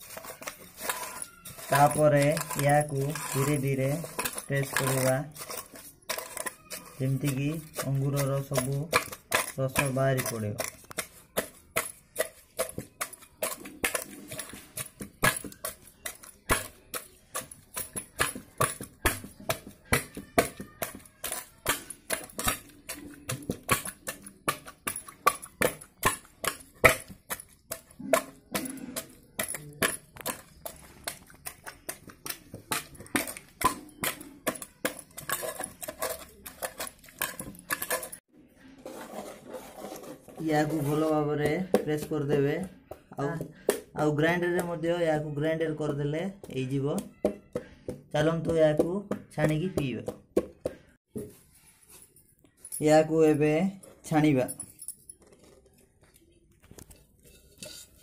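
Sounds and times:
metal tumbler clinking in pot: 0.0s - 11.0s, 11.8s - 38.2s.

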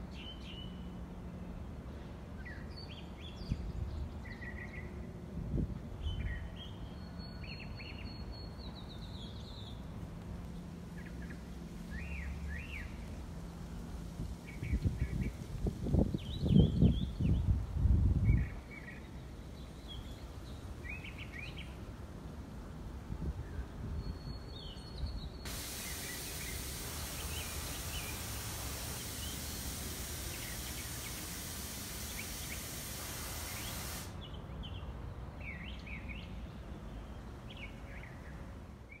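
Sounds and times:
songbirds chirping: 0.0s - 39.0s
loud even hiss: 25.4s - 34.3s.

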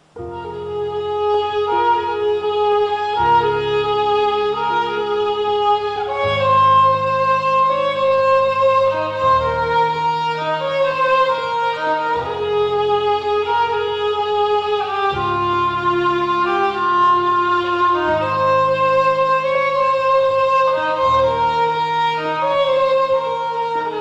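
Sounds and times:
background music with held notes: 0.0s - 24.0s
sustained bass: 0.0s - 24.0s.

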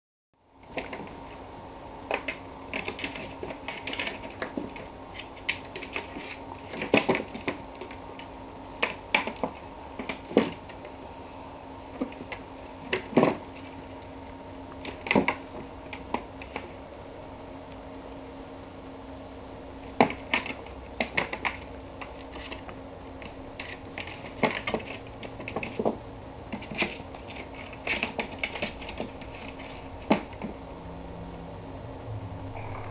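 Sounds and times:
faint steady hum: 0.4s - 32.9s
kitten claws skittering on plastic: 2.1s - 11.0s, 19.9s - 30.6s.

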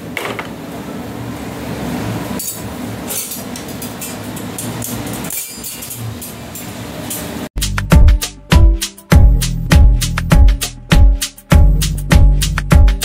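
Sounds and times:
metal utensils clinking and scraping: 2.4s - 7.4s.

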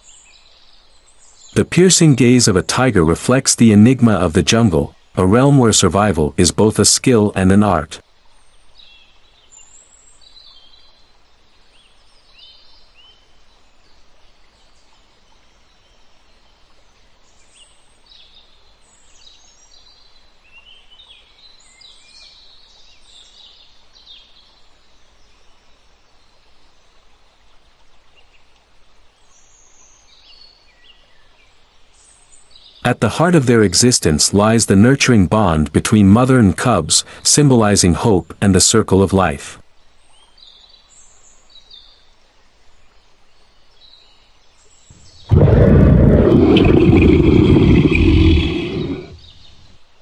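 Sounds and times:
faint steady hiss: 0.0s - 50.0s
small birds chirping: 43.6s - 49.7s.

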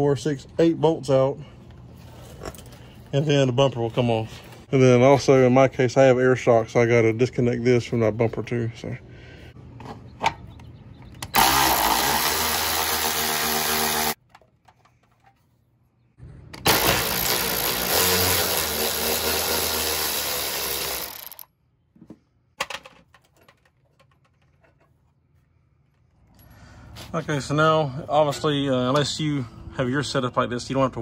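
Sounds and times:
power tool running: 11.2s - 14.2s, 16.6s - 21.5s.

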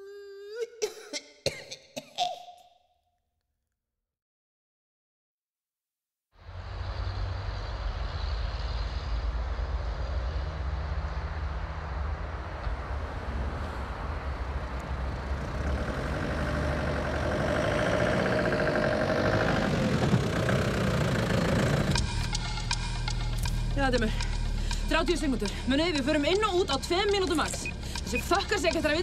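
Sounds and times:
vehicle engine idling: 6.7s - 29.0s.

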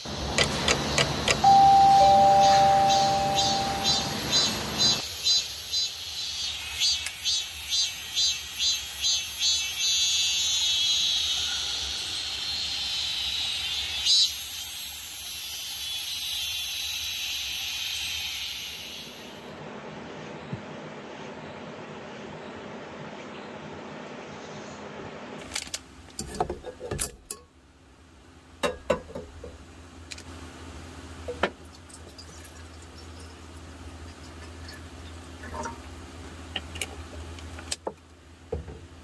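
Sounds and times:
insects chirping: 0.0s - 19.4s
high insect buzz: 1.2s - 19.3s.

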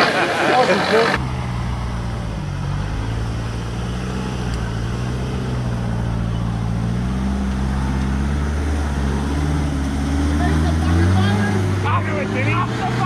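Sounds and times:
diesel truck engine at low revs: 0.0s - 13.0s.

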